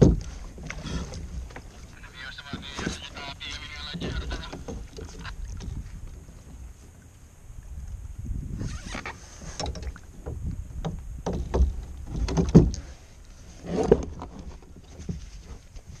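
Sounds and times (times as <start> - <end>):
wind rumble on microphone: 0.0 - 1.7, 3.9 - 16.0.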